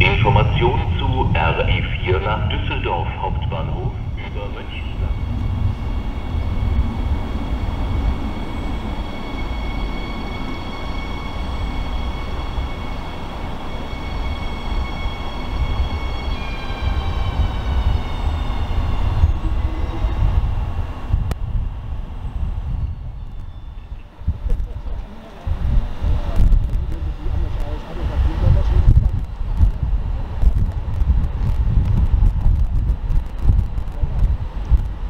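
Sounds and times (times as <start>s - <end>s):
train wheels rumbling on track: 0.0s - 35.0s
traction motor whine: 3.2s - 29.8s.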